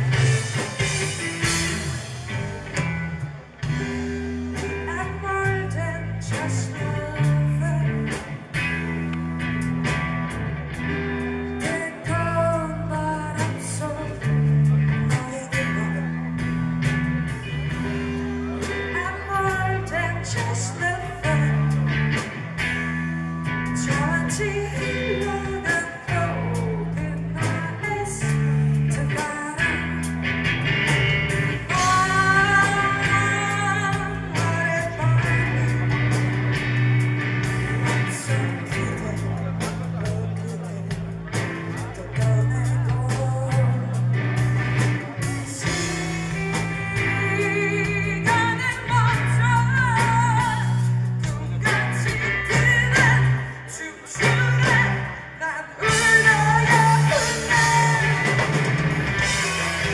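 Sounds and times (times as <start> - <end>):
bass guitar: 0.0 - 59.9
drum kit beat: 0.0 - 59.9
electric guitar: 0.0 - 59.9
woman singing: 4.6 - 8.4, 11.5 - 16.3, 18.5 - 22.0, 23.6 - 30.1, 31.7 - 36.1, 41.9 - 44.4, 45.2 - 58.6.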